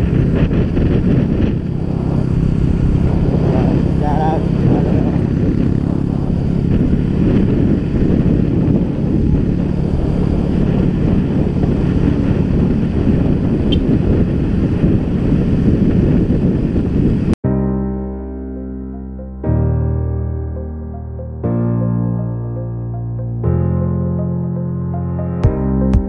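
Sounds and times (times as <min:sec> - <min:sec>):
motorcycle engine hum: 0:00.0 - 0:17.4
wind buffeting microphone: 0:00.0 - 0:17.4.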